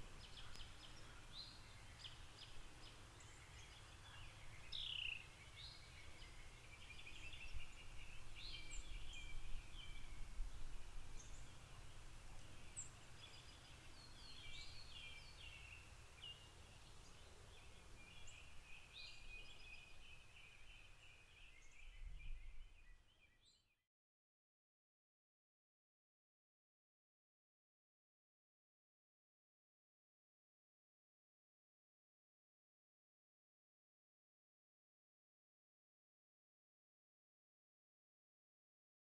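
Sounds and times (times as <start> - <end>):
small birds chirping: 0.0 - 23.8.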